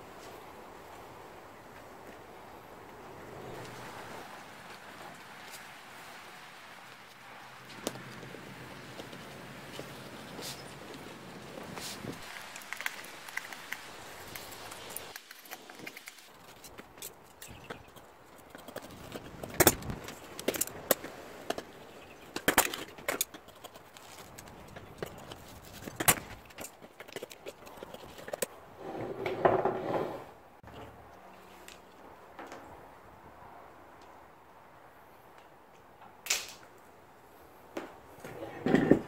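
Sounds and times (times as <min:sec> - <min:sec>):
vinyl rustling: 0:03.4 - 0:28.5.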